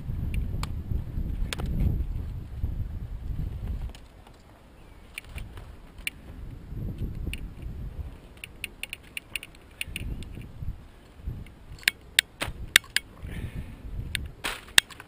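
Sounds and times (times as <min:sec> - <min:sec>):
sharp clicks: 0:05.1 - 0:06.2, 0:08.3 - 0:10.5, 0:11.4 - 0:13.1.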